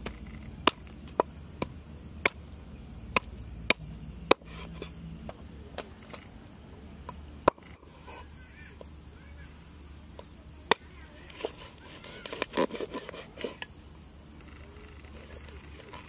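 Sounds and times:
cleaver chopping on wooden board: 0.0 - 2.4, 3.1 - 6.3.

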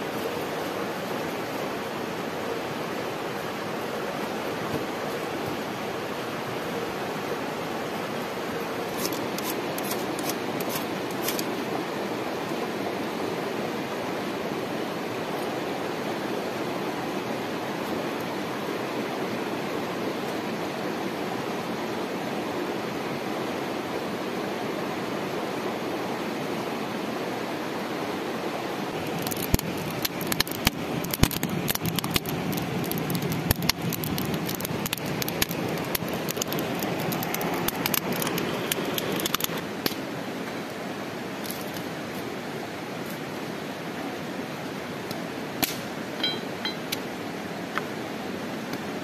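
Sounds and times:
wood fire crackling and popping: 8.9 - 11.5, 28.9 - 40.0, 45.0 - 45.9.

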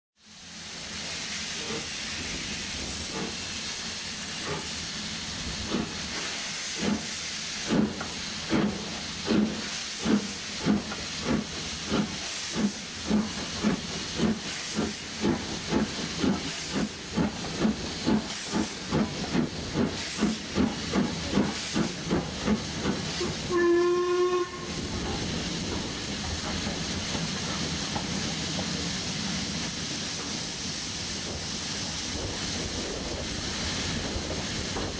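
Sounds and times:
hiss of steam: 0.2 - 34.9
steam locomotive exhaust chuffs: 0.2 - 34.9
train whistle blast: 23.2 - 24.8.

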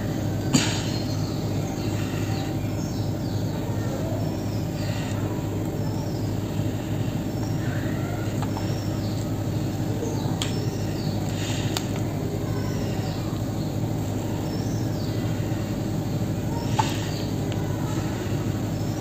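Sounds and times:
low rumbling hum: 0.0 - 19.0
faint clicks: 8.2 - 9.3, 11.2 - 12.1.

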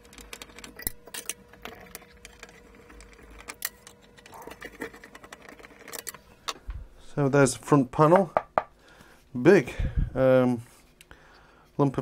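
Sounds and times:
metal parts and tools clicking: 0.0 - 6.2.

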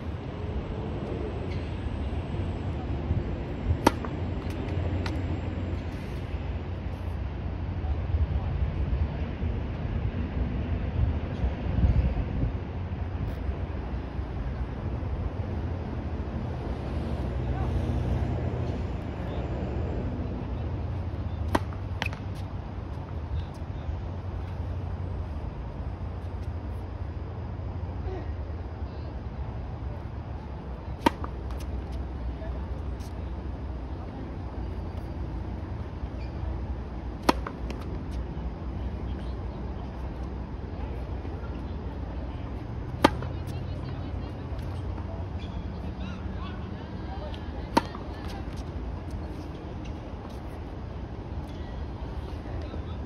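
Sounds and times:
tennis racket striking ball: 21.5 - 22.2, 37.2 - 37.9, 43.0 - 43.3.

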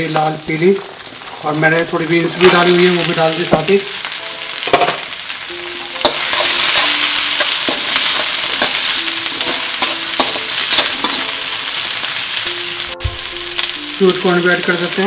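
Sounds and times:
vegetables sizzling in hot oil: 0.0 - 15.0
metal spatula scraping wok: 6.0 - 12.4.

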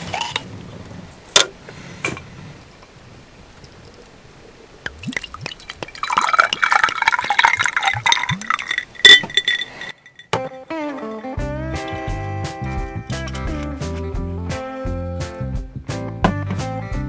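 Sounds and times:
liquid glugging from a bottle: 4.8 - 9.6
glass clinking: 4.9 - 12.2
guitar music: 10.4 - 15.6.

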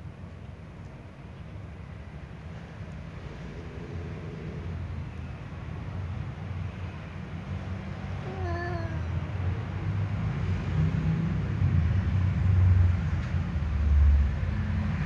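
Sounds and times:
cat yowling: 8.2 - 9.1.

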